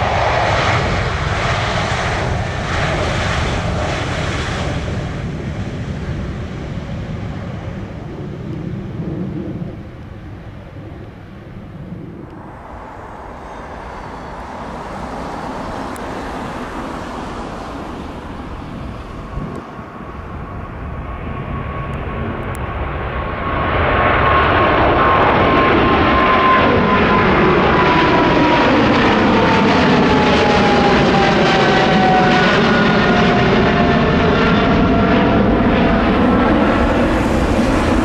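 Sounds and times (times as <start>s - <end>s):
high jet engine whine: 0.0s - 38.0s
jet engines rumbling: 0.0s - 38.0s.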